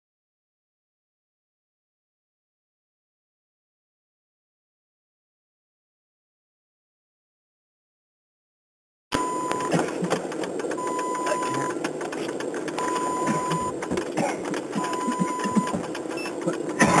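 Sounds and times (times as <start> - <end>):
electronic warning chime beeping: 9.2 - 9.7, 10.8 - 11.8, 12.8 - 13.8, 14.8 - 16.6
crackling rattling noise: 9.2 - 17.0.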